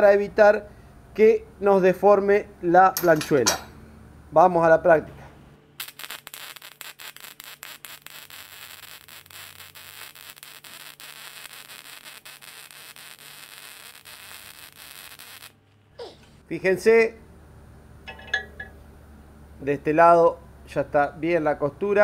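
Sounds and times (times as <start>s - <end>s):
welding arc crackling: 5.8s - 15.9s.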